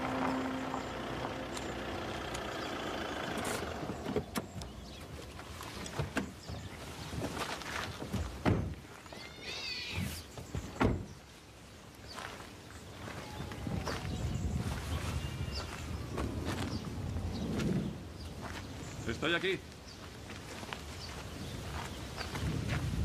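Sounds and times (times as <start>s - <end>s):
car stopping on gravel: 0.0s - 8.0s
car doors thumping shut: 8.1s - 8.8s, 10.8s - 11.1s.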